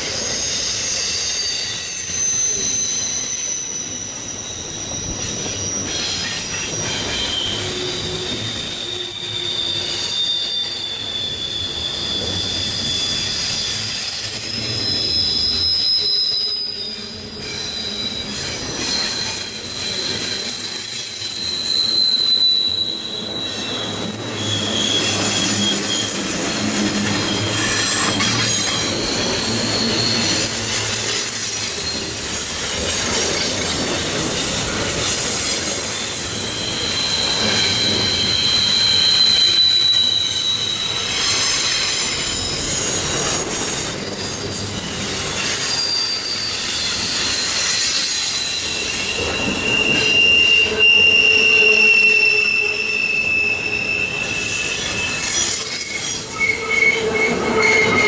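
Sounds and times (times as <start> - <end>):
rumble of train wheels: 0.0 - 58.0
train wheels squealing on rail: 0.0 - 58.0.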